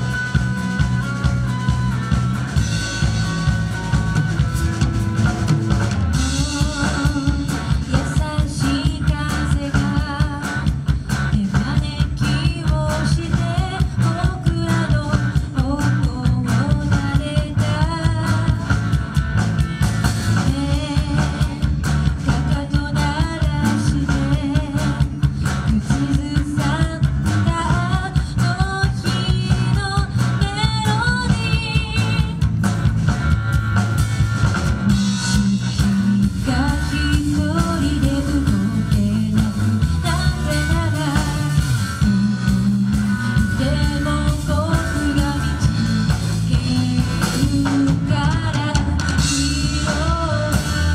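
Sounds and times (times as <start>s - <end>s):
drum kit: 0.0s - 50.9s
electric guitars: 0.0s - 50.9s
woman singing: 6.2s - 19.0s, 20.3s - 32.5s, 34.9s - 50.9s.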